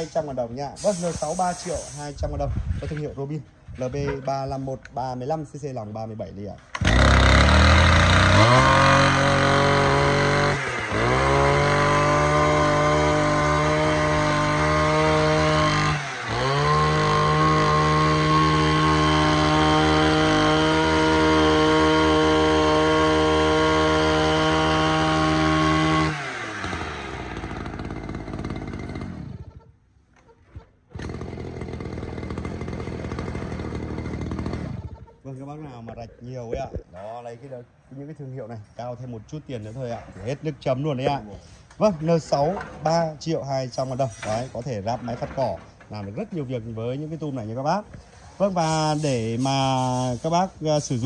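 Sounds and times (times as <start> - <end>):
two-stroke engine running fast: 6.8 - 29.5, 31.0 - 35.0.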